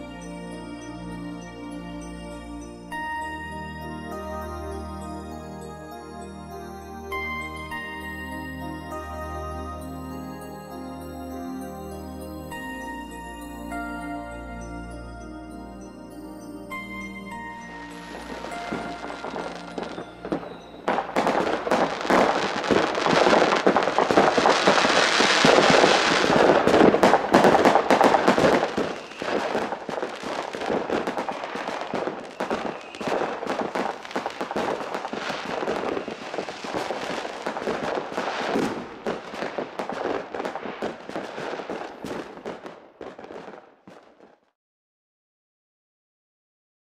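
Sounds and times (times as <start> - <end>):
firecrackers crackling and popping: 16.7 - 44.5.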